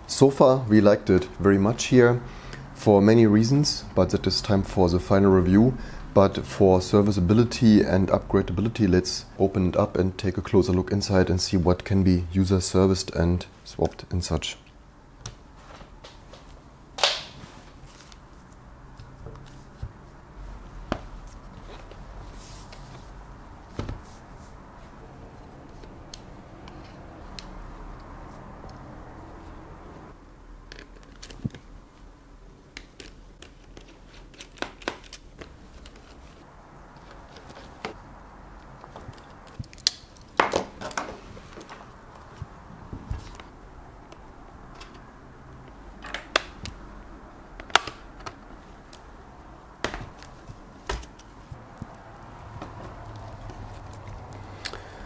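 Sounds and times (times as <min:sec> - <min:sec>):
laptop cover clicks and knocks: 0:47.6 - 0:48.4.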